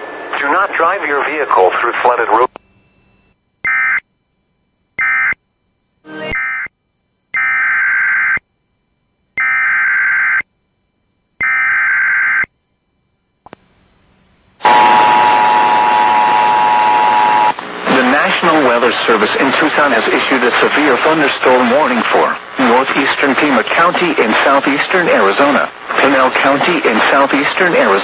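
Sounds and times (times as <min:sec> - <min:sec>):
two-tone attention signal: 0:06.0 - 0:06.7, 0:14.6 - 0:17.5.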